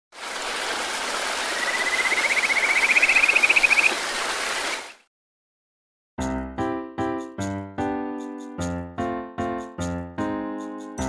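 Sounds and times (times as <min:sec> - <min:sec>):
water rushing: 0:00.1 - 0:05.0.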